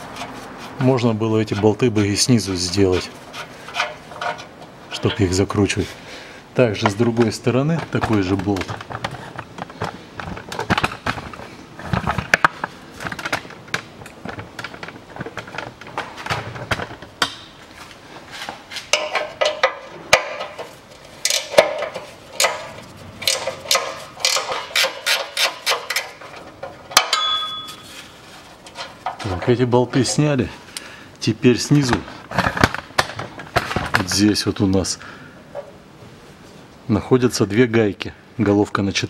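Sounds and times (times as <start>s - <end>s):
hand ratchet clicking: 21.2s - 26.2s
ringing metal clink: 27.1s - 27.9s.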